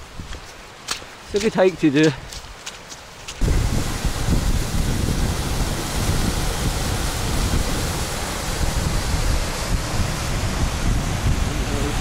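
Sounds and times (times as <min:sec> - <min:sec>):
running water: 0:00.0 - 0:12.0
wind buffeting microphone: 0:03.4 - 0:12.0.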